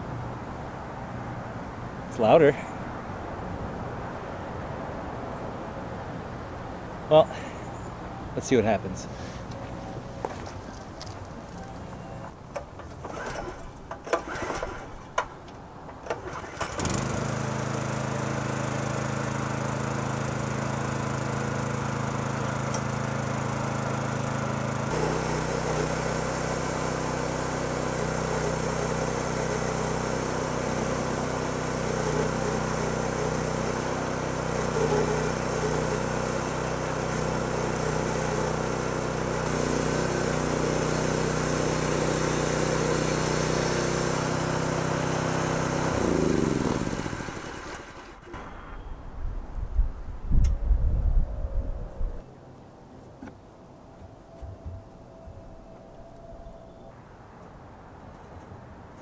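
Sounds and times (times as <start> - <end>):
gas engine running: 8.8 - 15.0, 16.0 - 48.8
band blade sawing log: 24.9 - 48.2.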